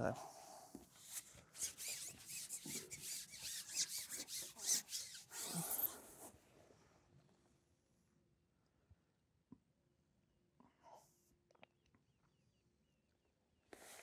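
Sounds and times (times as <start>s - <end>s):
fishing pole rubbing and rasping: 0.8s - 6.3s.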